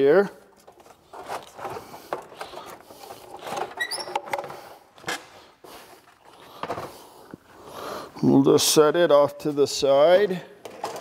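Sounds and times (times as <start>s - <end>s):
plastic scraping and rattling: 0.5s - 5.4s, 10.6s - 11.0s
short squeak: 3.8s - 4.2s.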